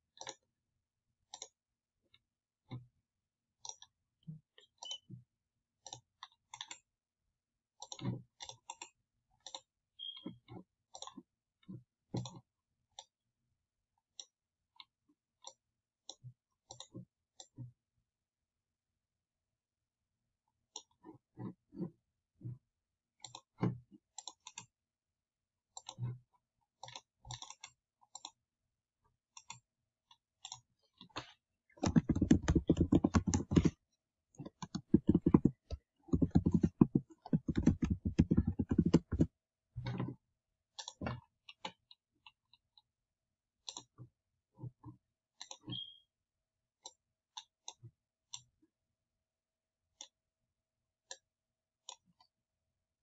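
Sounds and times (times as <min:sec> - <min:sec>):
computer mouse clicks: 0:31.8 - 0:33.7, 0:34.4 - 0:39.3
fast keyboard typing: 0:31.8 - 0:33.8, 0:34.4 - 0:39.3.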